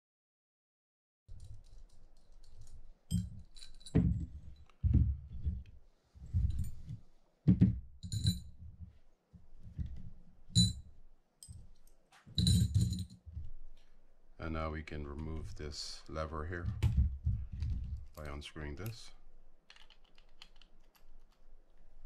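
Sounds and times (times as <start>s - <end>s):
soft knocks on padded mat: 7.5s - 7.8s
sharp metallic clinks: 8.0s - 8.5s, 10.6s - 11.6s, 12.4s - 13.2s.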